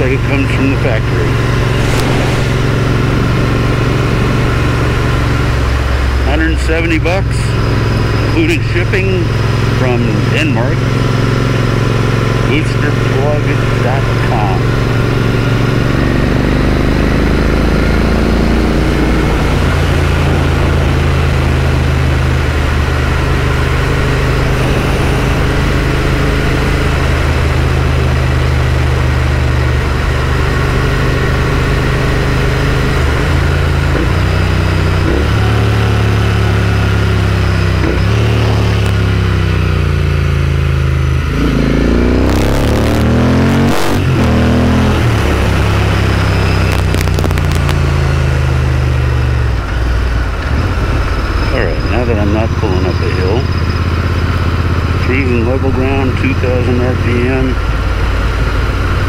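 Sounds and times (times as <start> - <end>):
motorcycle engine running: 0.0 - 59.0
wind rush: 1.2 - 6.0.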